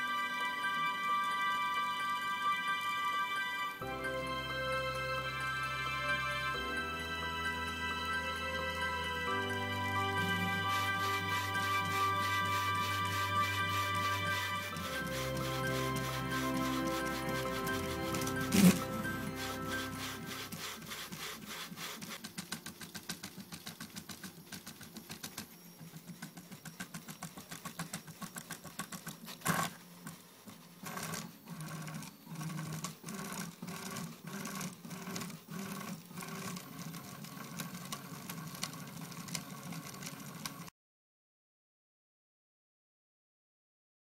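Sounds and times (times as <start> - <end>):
short pitched motor buzzes: 8.9 - 22.0.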